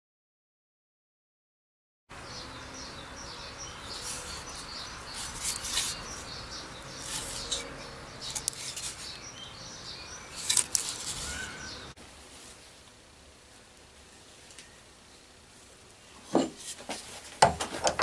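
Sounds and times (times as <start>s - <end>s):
small birds chirping: 2.1s - 12.0s
rubbing and clicking sounds: 4.0s - 6.3s, 7.0s - 9.2s, 10.3s - 11.4s.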